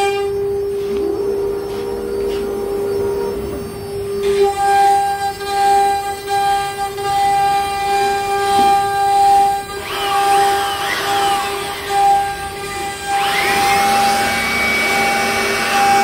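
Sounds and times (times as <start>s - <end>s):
sweeping whines: 0.0s - 16.0s
wood router spindle whining: 0.0s - 16.0s.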